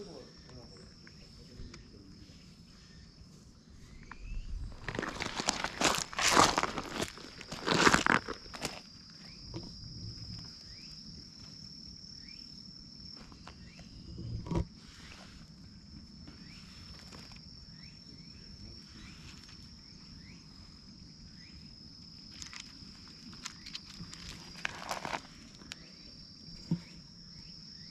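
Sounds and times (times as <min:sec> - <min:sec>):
insect high-pitched trill: 0:00.0 - 0:27.9
faint rising chirps: 0:03.7 - 0:04.9.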